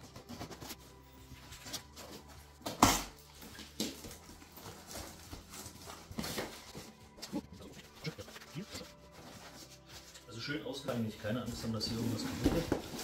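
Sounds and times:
cardboard flaps rustling: 11.2s - 13.0s.

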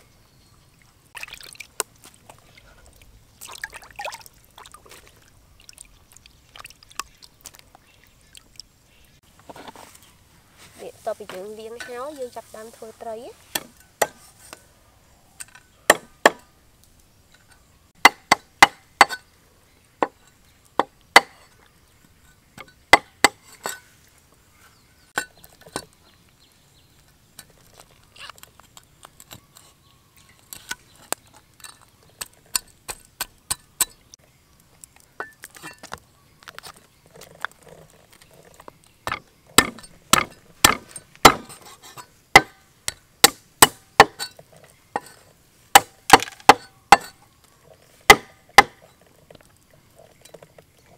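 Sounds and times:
cleaver chopping on wooden block: 15.9s - 16.5s, 18.0s - 19.2s, 20.8s - 21.4s, 22.9s - 23.4s, 39.1s - 41.6s, 42.4s - 42.6s, 43.2s - 44.2s, 48.1s - 48.8s.

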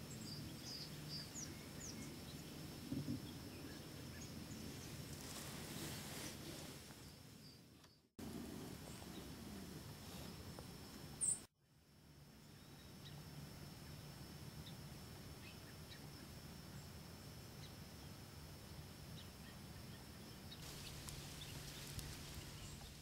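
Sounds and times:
faint steady hiss: 0.0s - 23.0s
clothing rustle: 5.1s - 7.0s.

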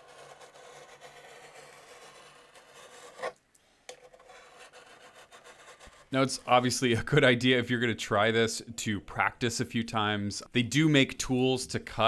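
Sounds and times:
knife scraping wood edge banding: 0.0s - 5.9s.

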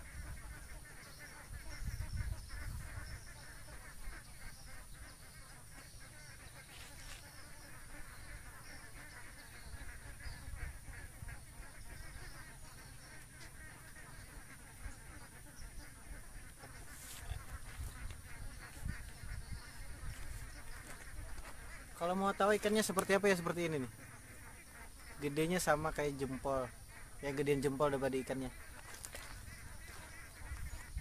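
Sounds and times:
wind rumbling on microphone: 0.0s - 0.7s, 1.5s - 3.3s, 9.6s - 11.4s, 17.2s - 21.8s, 29.1s - 31.0s
waterfowl chattering chorus: 0.0s - 31.0s.

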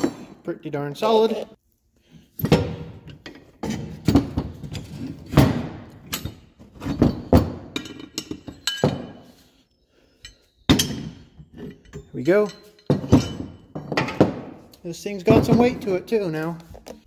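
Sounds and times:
metal parts clanking: 2.3s - 9.5s, 10.1s - 14.4s.

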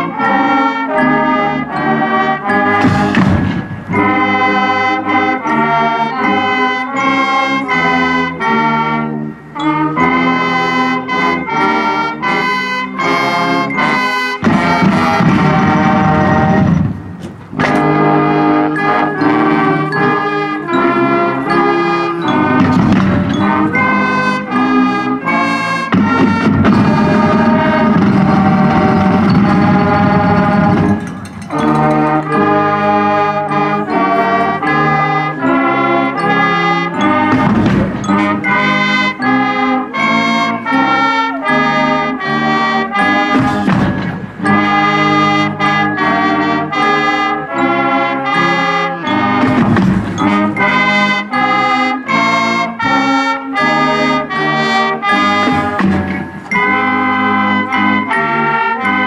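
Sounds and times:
trumpets and trombones playing: 0.0s - 59.0s
marching drums: 2.6s - 5.7s, 13.2s - 20.2s, 22.1s - 33.2s, 37.0s - 41.0s, 42.3s - 47.2s, 48.4s - 53.0s, 54.2s - 59.0s.

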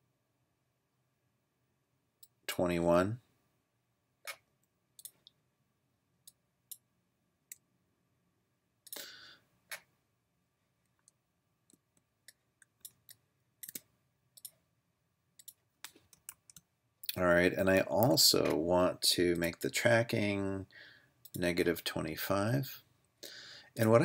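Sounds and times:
mouse and keyboard clicks: 11.0s - 14.6s.

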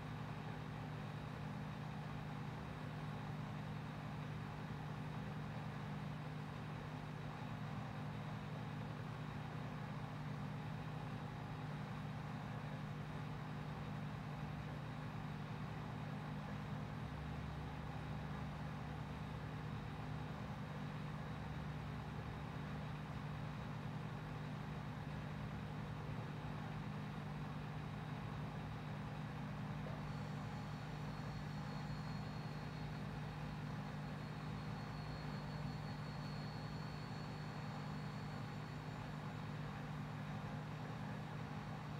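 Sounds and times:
faint high whine: 0.0s - 41.9s
low machine hum: 0.0s - 41.9s.

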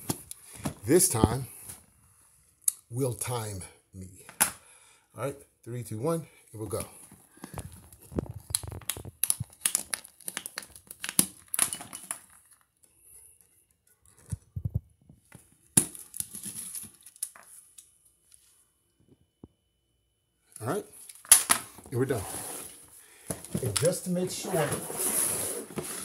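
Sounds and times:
plastic wrap crinkling: 7.6s - 12.7s.

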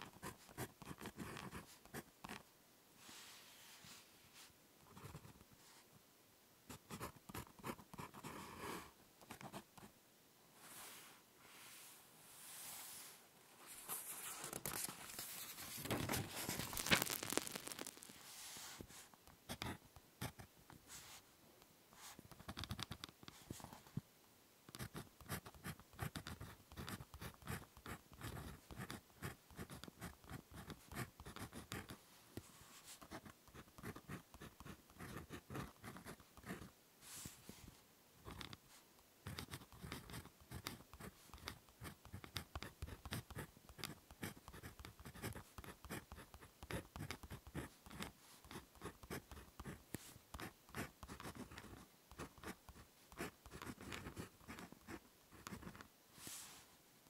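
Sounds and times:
pen writing on paper: 24.8s - 32.0s, 33.1s - 36.7s, 39.3s - 49.8s, 50.4s - 55.8s.

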